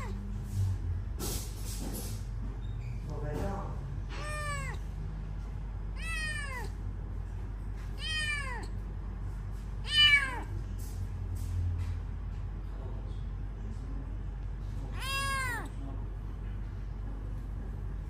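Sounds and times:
kitten meowing: 0:00.0 - 0:00.2, 0:04.1 - 0:04.9, 0:06.0 - 0:06.8, 0:07.9 - 0:08.8, 0:09.8 - 0:10.5, 0:14.9 - 0:15.7.

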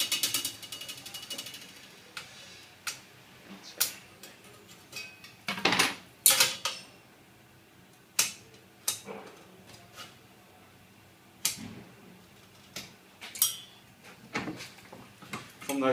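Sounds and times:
metal tools clattering on steel: 0:13.3 - 0:13.8.

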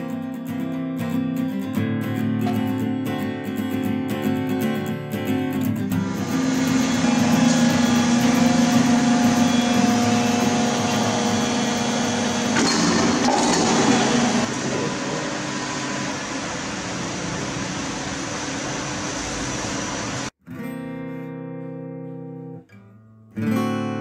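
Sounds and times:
machinery hum: 0:05.9 - 0:20.3
blower-like roar: 0:06.1 - 0:16.4.

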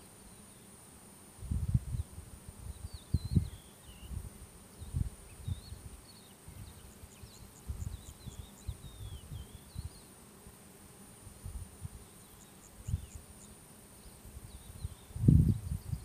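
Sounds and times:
wind buffeting microphone: 0:01.4 - 0:06.8, 0:14.4 - 0:16.0
high-pitched insect trill: 0:01.6 - 0:04.2, 0:04.8 - 0:10.1, 0:12.0 - 0:16.0
small birds chirping: 0:01.9 - 0:10.3, 0:12.0 - 0:16.0.

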